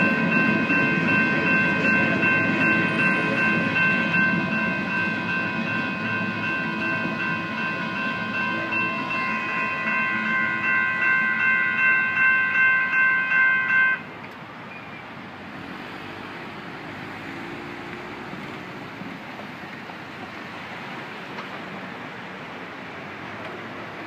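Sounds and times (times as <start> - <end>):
railroad crossing bell ringing: 0.0 - 14.9.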